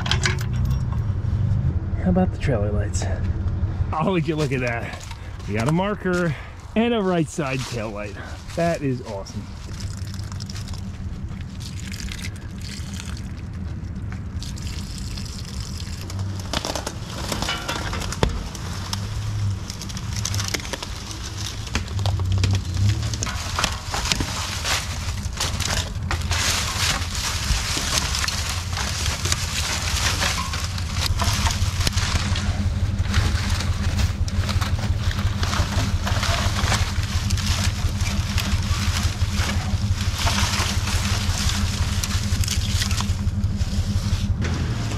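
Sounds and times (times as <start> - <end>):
truck engine idling: 0.0 - 44.9
dry sticks crackling and snapping: 4.4 - 6.4, 7.4 - 44.4.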